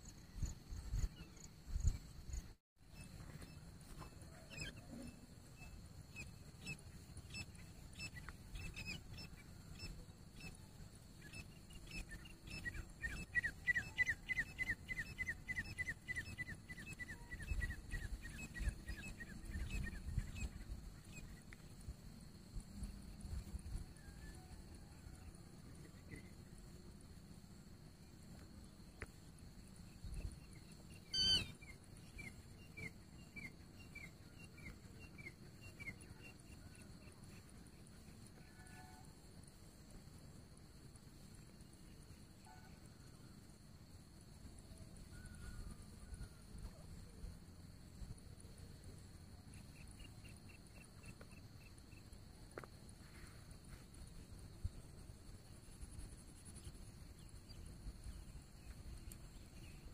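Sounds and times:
francolin calling: 0:30.5 - 0:37.4
harsh bird call: 0:31.1 - 0:31.6.

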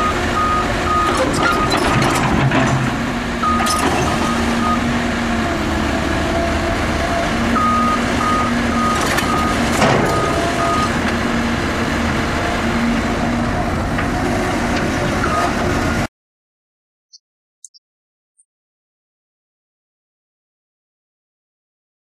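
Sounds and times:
travel alarm beeping: 0:00.0 - 0:01.8, 0:03.4 - 0:04.9, 0:07.6 - 0:11.0
excavator diesel engine running: 0:00.0 - 0:16.1.

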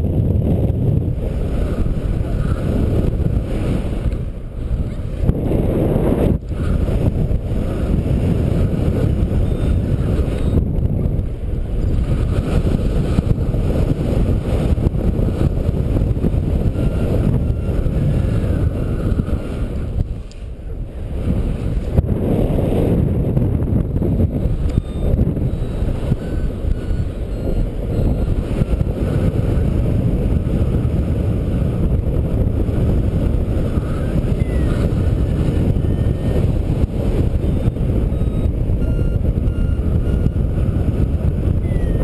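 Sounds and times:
wind rushing over microphone: 0:00.0 - 0:42.0
faint short beeps: 0:09.4 - 0:10.7, 0:24.4 - 0:28.6, 0:33.7 - 0:36.6, 0:37.5 - 0:40.8, 0:41.6 - 0:42.0.

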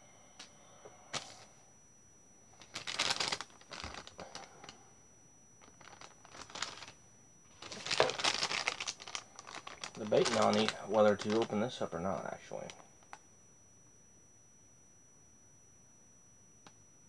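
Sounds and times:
snack packet crinkling: 0:02.6 - 0:04.8, 0:05.6 - 0:13.2.

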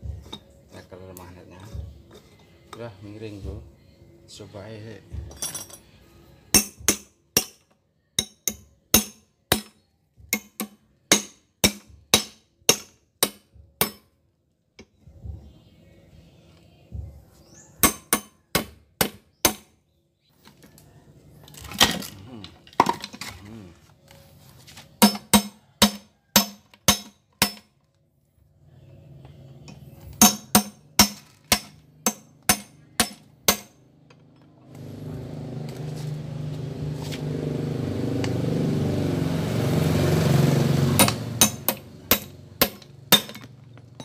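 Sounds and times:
hammer on metal: 0:06.5 - 0:14.1, 0:17.8 - 0:19.7, 0:25.0 - 0:27.6, 0:29.7 - 0:33.8, 0:41.0 - 0:43.5.

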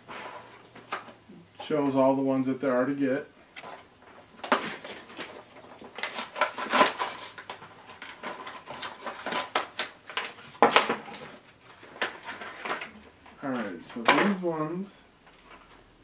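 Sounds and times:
plastic packaging crinkling: 0:03.6 - 0:13.7.

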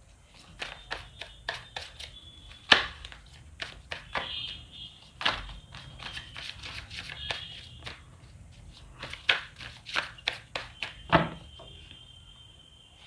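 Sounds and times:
cards being shuffled: 0:00.3 - 0:04.3, 0:05.1 - 0:11.0.

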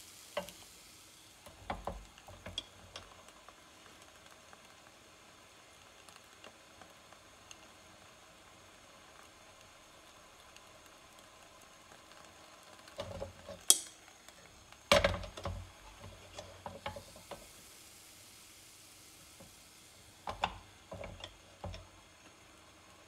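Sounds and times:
faint frying sizzle: 0:00.0 - 0:23.0
metal cooker clanking on grate: 0:01.6 - 0:03.1, 0:12.9 - 0:13.9, 0:14.9 - 0:17.5, 0:20.3 - 0:21.9.

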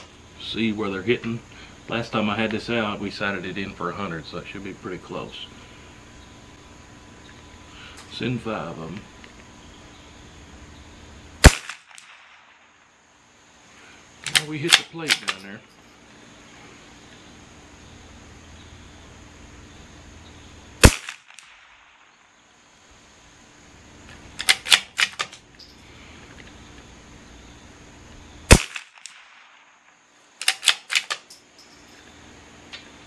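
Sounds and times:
rifle shots: 0:11.4 - 0:12.7, 0:20.8 - 0:22.1, 0:28.5 - 0:29.8, 0:30.4 - 0:31.2
metallic clicks of rifle bolt: 0:14.2 - 0:15.5, 0:24.4 - 0:25.7, 0:30.4 - 0:31.7.

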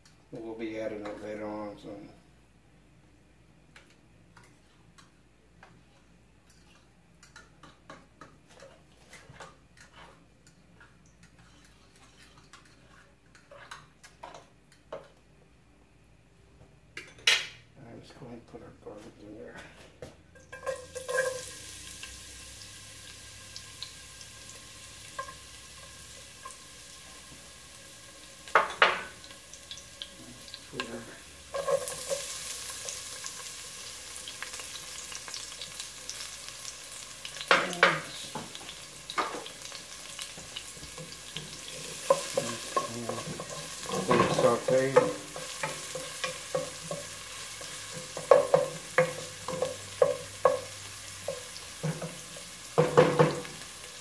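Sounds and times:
wooden spoon scraping a pan: 0:07.6 - 0:10.3, 0:11.2 - 0:14.4, 0:30.0 - 0:54.0
garlic sizzling in hot oil: 0:20.4 - 0:54.0.

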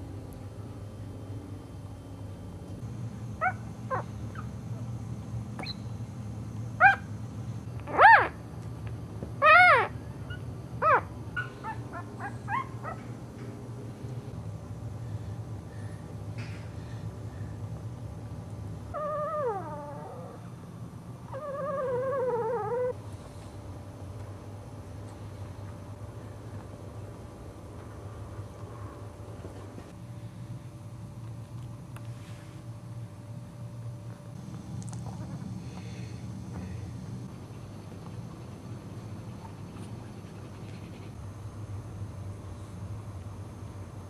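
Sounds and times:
low steady hum: 0:00.0 - 0:44.0
puppy whining: 0:07.9 - 0:08.4, 0:09.4 - 0:13.1, 0:18.9 - 0:20.5, 0:21.3 - 0:23.0
puppies squeaking and whimpering: 0:09.4 - 0:09.9, 0:21.3 - 0:23.0.

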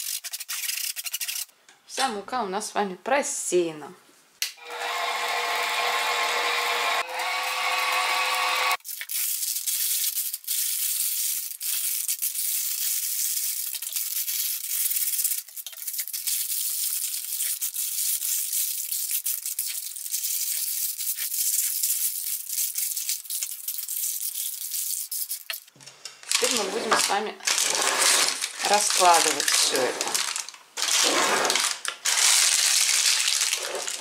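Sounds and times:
scissors cutting paper: 0:00.0 - 0:01.5, 0:26.4 - 0:30.2
stand mixer motor whining: 0:04.6 - 0:08.8
parchment paper rustling: 0:08.8 - 0:34.0.

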